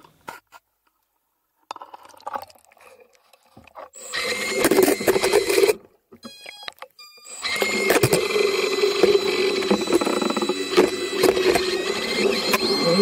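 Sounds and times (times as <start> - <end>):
electric thruster motors whining: 7.4 - 13.0.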